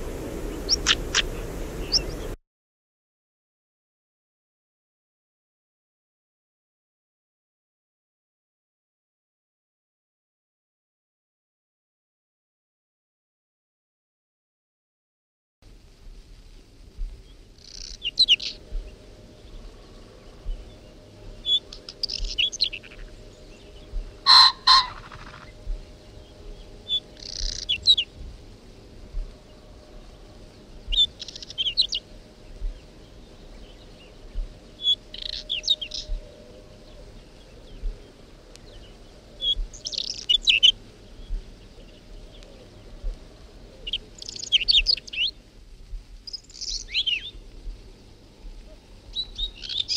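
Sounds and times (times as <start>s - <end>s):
bird singing twittering phrases: 0.4s - 2.4s, 17.2s - 45.5s, 46.2s - 49.9s.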